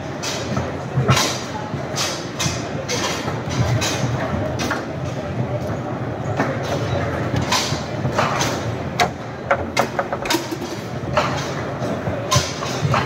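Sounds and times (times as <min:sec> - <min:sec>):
crowd murmur in a hall: 0:00.0 - 0:13.0.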